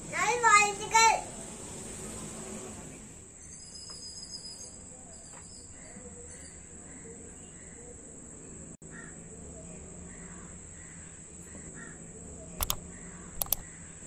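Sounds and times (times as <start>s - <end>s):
crows cawing: 8.9s - 9.2s, 10.1s - 12.0s
sharp clicks: 12.6s - 12.8s, 13.4s - 13.7s.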